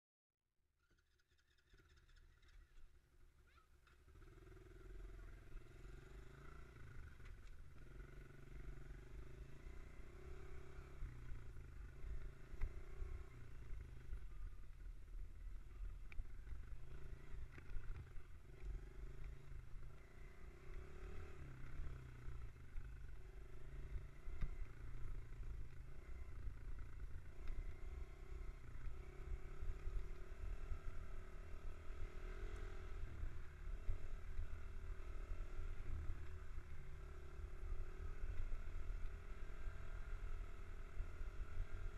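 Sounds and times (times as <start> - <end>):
dirt bike engine revving: 16.8 - 22.5.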